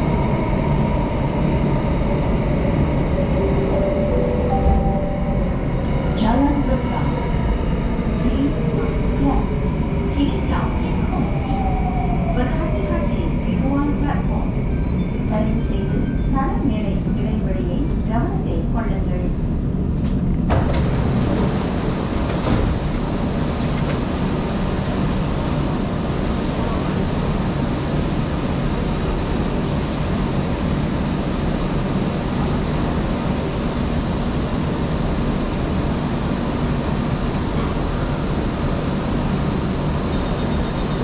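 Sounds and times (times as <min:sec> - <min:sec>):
high-pitched whine: 0:00.1 - 0:07.1, 0:20.6 - 0:41.0
train equipment humming: 0:00.9 - 0:09.5.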